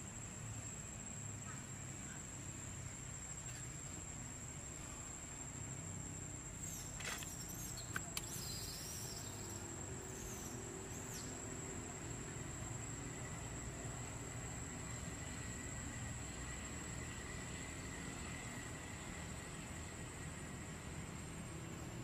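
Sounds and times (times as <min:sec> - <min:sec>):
high insect drone: 0:00.0 - 0:22.0
small sharp clicks: 0:06.9 - 0:08.6.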